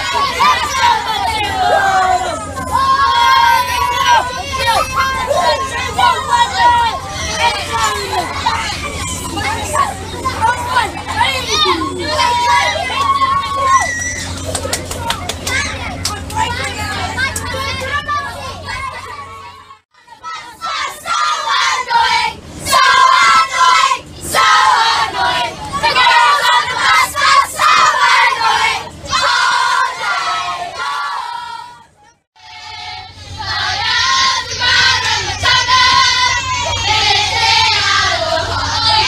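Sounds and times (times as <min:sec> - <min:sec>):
shouted chanting: 0:00.0 - 0:14.4, 0:16.8 - 0:31.8
bus engine humming: 0:00.0 - 0:39.0
children singing together: 0:32.4 - 0:39.0.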